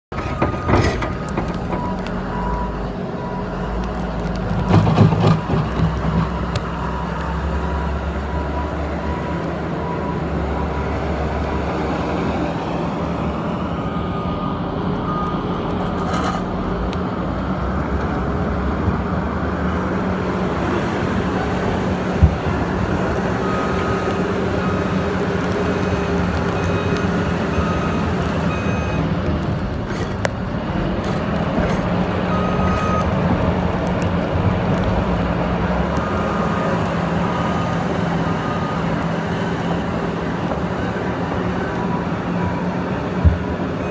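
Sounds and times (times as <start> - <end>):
reversing alarm beeps: 25.8 - 29.0, 32.3 - 33.1, 41.6 - 42.8.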